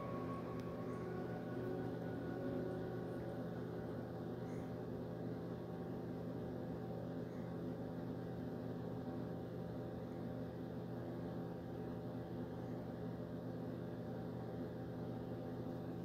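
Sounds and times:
ambient drone music: 0:00.0 - 0:07.1.

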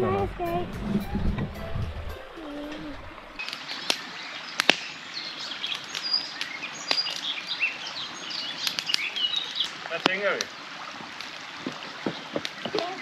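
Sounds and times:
songbirds chirping and singing: 0:00.0 - 0:10.7
logs crackling in fire: 0:03.0 - 0:13.0.

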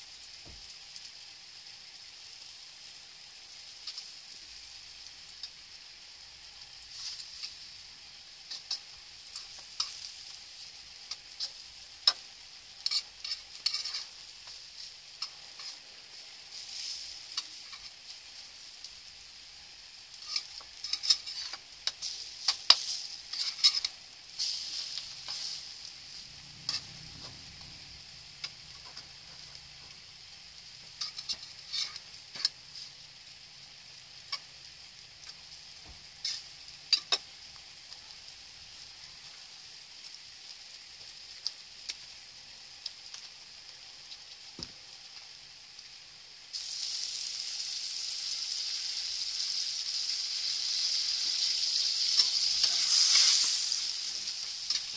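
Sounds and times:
bread frying in a wok: 0:00.0 - 0:54.9
metal spatula scraping a wok: 0:06.9 - 0:07.7, 0:08.5 - 0:10.3, 0:12.8 - 0:18.1, 0:20.1 - 0:27.4, 0:30.9 - 0:33.0, 0:36.1 - 0:37.2, 0:52.0 - 0:54.9.

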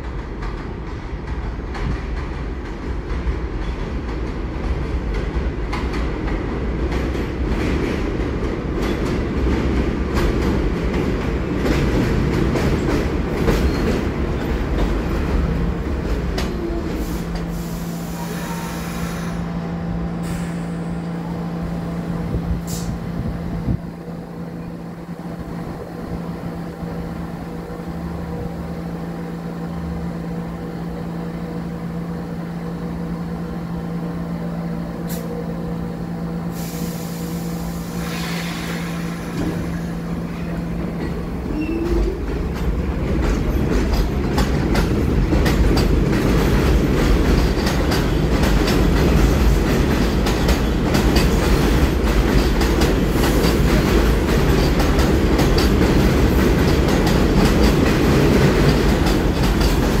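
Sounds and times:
subway train electrical hum: 0:00.0 - 1:00.0
air hiss: 0:17.0 - 0:19.6, 0:20.2 - 0:21.1, 0:22.6 - 0:23.1, 0:36.5 - 0:39.9
wheels clattering over rail joints: 0:39.4 - 1:00.0.

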